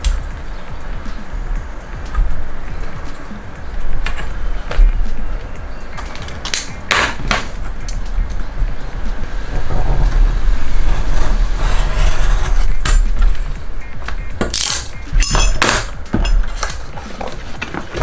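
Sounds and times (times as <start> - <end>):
steel ruler scraping and knocking: 10.9 - 13.3.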